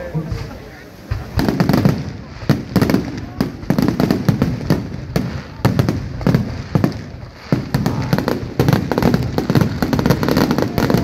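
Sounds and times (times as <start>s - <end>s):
fireworks crackling: 0.0s - 11.0s.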